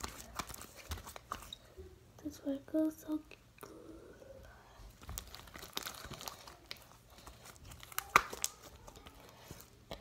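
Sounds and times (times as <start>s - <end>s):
slime crackling and popping: 5.0s - 9.2s.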